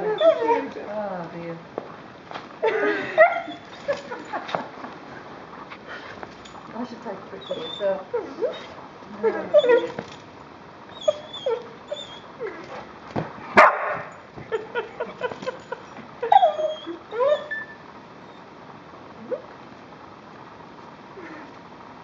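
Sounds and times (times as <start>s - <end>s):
dog whining and yipping: 0.0s - 0.7s, 3.2s - 4.1s, 7.4s - 10.2s, 10.9s - 12.9s, 15.2s - 18.5s
harsh dog sound: 11.1s - 14.1s.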